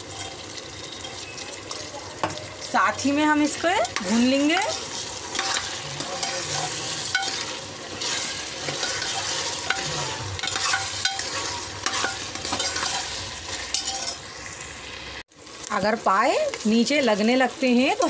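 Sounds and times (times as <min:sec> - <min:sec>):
steel spoon stirring and scraping: 0:00.0 - 0:14.3
meat sizzling in hot oil: 0:00.0 - 0:18.0.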